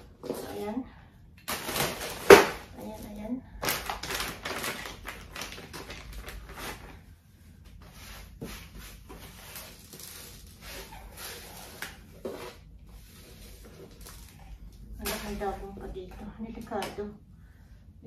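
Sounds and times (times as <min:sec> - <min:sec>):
plastic packet rustling: 0:01.4 - 0:07.0.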